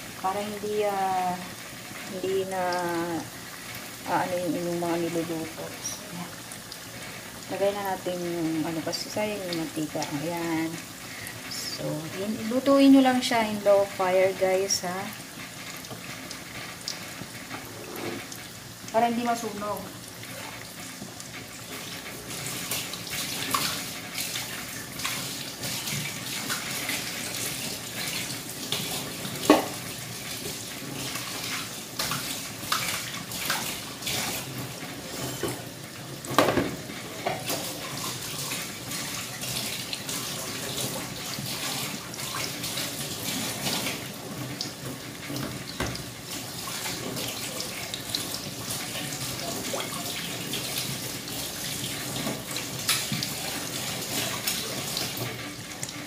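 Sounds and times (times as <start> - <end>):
chicken frying in hot oil: 0.0 - 56.0.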